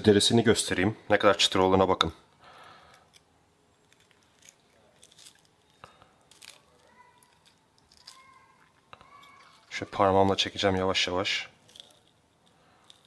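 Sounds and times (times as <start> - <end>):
knife and fork crackling on skin: 2.9 - 9.8, 11.6 - 13.0.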